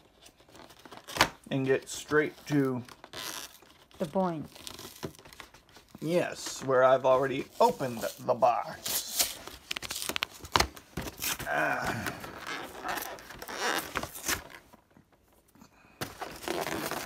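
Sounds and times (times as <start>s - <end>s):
plastic wrap tearing and crinkling: 0.0s - 6.5s, 7.2s - 14.8s, 16.1s - 17.0s.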